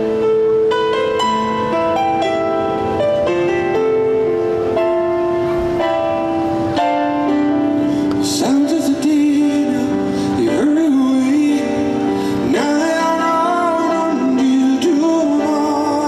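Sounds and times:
piano playing sustained chords: 0:00.0 - 0:16.0
man singing long notes: 0:08.1 - 0:16.0.

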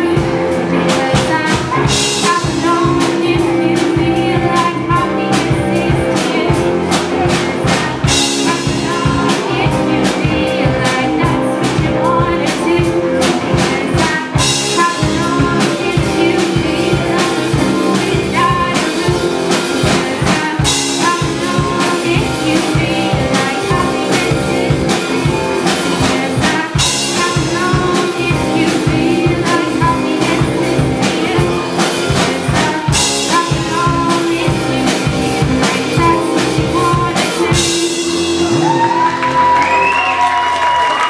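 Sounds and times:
live band playing pop song: 0:00.0 - 0:41.0
crowd whooping: 0:38.3 - 0:41.0
applause: 0:38.8 - 0:41.0.

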